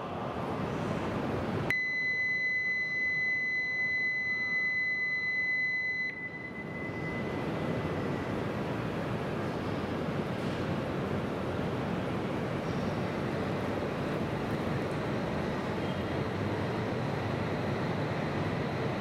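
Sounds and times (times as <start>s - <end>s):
electronic departure bell tone: 1.7s - 7.4s
station rumble and hiss: 6.9s - 19.0s.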